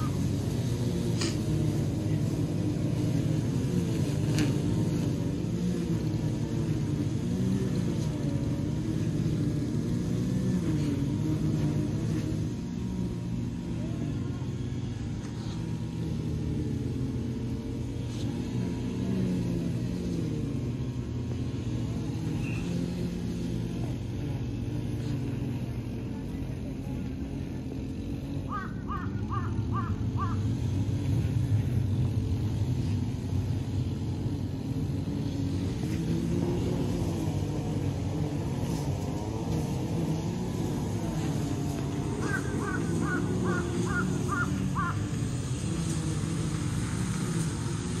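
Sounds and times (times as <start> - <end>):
crow cawing: 28.5 - 30.4, 42.2 - 45.0.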